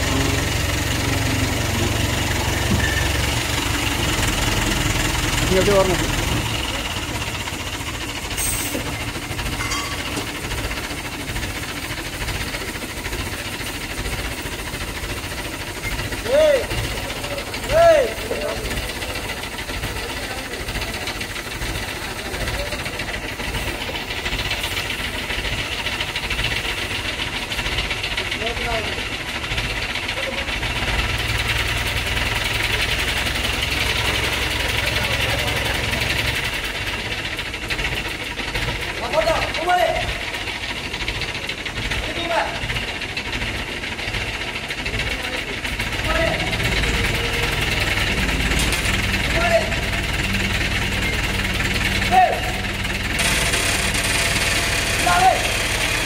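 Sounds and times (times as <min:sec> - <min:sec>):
crane engine rumbling: 0:00.0 - 0:56.0.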